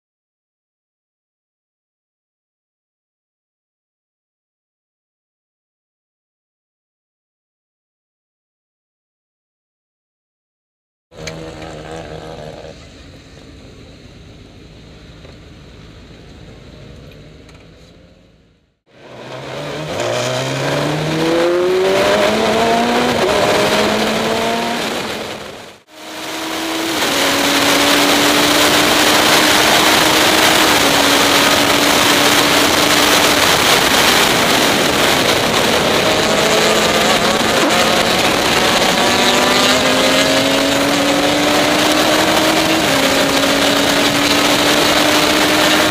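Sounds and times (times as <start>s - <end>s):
race car engine accelerating: 11.2s - 13.9s, 16.4s - 45.9s
wind noise on microphone: 20.7s - 45.9s.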